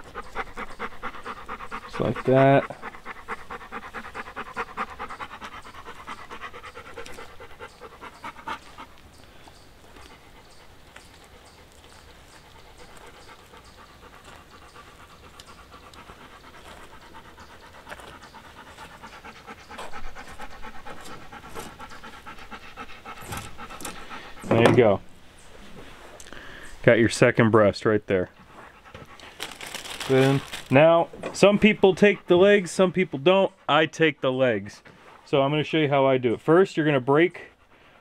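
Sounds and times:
dog panting: 0:00.0 - 0:25.1, 0:28.1 - 0:38.0.

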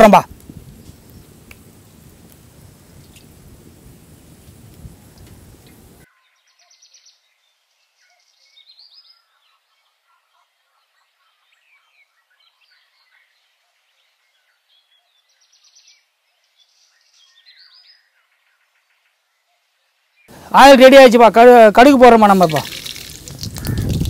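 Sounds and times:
songbirds chirping: 0:00.0 - 0:24.0
hot oil sizzling and crackling: 0:00.2 - 0:06.1, 0:21.7 - 0:24.0
bird rattling trills: 0:22.4 - 0:24.0.

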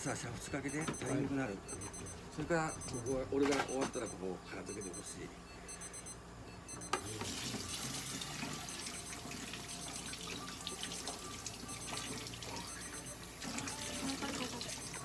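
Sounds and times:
tap water running into sink: 0:07.2 - 0:12.6.

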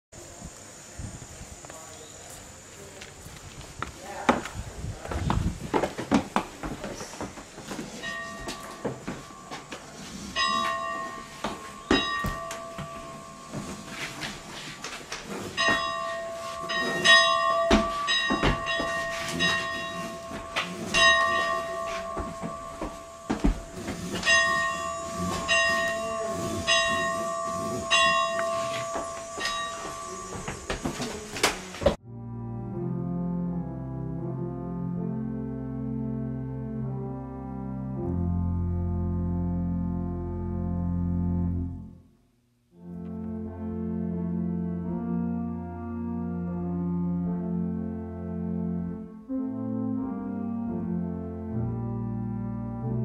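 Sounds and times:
church bell ringing: 0:07.9 - 0:14.8, 0:15.4 - 0:31.5.

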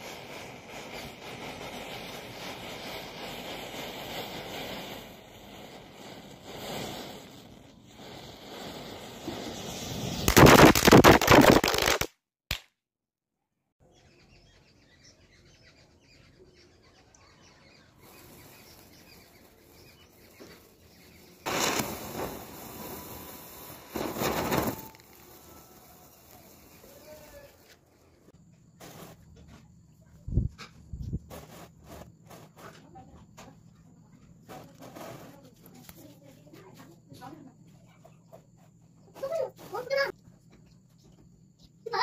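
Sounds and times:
firecrackers crackling pops: 0:00.0 - 0:12.7, 0:18.0 - 0:29.2, 0:34.5 - 0:36.3.

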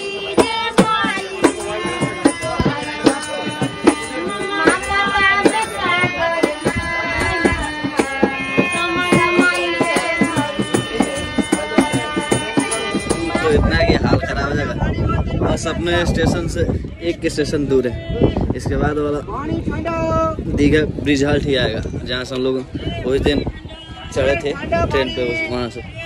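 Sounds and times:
hand drum beat: 0:00.0 - 0:14.0
ornamented sung melody: 0:00.0 - 0:19.0.

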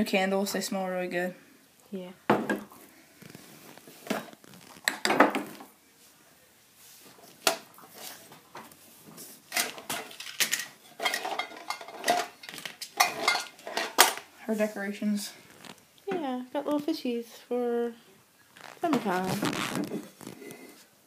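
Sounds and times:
glass jars clinking: 0:10.4 - 0:12.4, 0:13.0 - 0:14.2.

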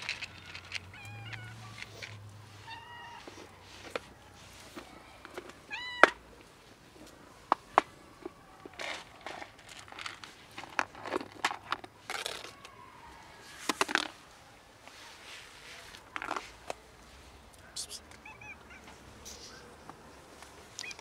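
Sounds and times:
cats meowing: 0:00.0 - 0:03.9, 0:04.8 - 0:06.2, 0:17.7 - 0:19.8, 0:20.8 - 0:21.0.

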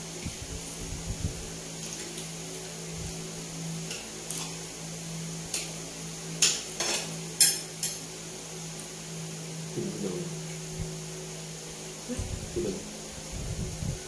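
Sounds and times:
steady low hum: 0:00.0 - 0:14.0
utensils clinking against plate: 0:06.4 - 0:08.0.

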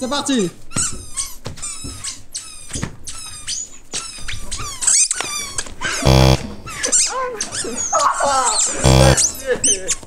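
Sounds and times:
short loud buzzing burst: 0:06.0 - 0:06.8, 0:08.8 - 0:09.3.

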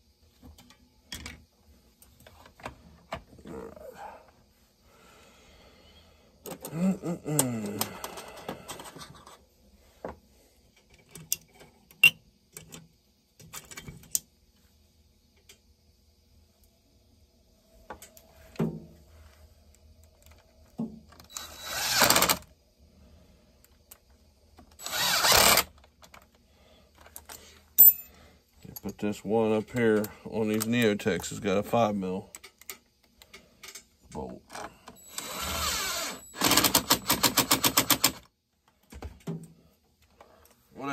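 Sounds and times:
tools clicking and knocking: 0:10.8 - 0:14.3, 0:36.4 - 0:39.5
cordless drill spurts: 0:21.3 - 0:22.4, 0:24.8 - 0:25.7, 0:35.0 - 0:38.2.

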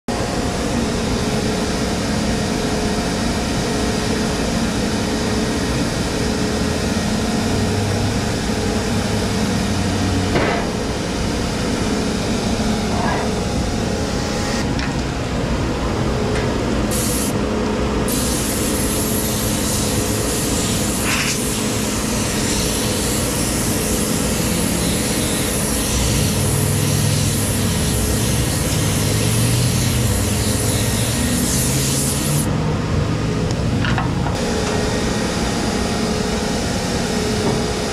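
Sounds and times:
car wash machinery rushing: 0:18.9 - 0:33.5.

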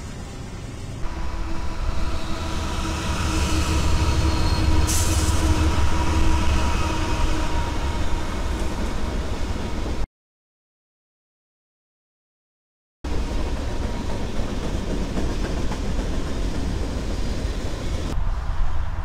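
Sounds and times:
locomotive engine and wheel rumble: 0:00.0 - 0:10.0.

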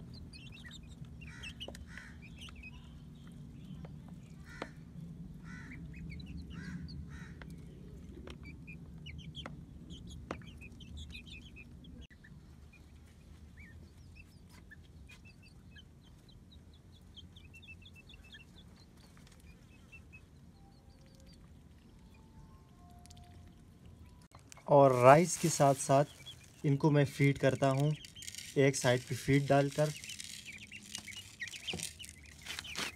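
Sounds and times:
chicks peeping: 0:00.0 - 0:32.9
low background rumble: 0:00.0 - 0:32.9
beaks tapping plastic bowl: 0:27.2 - 0:32.6.

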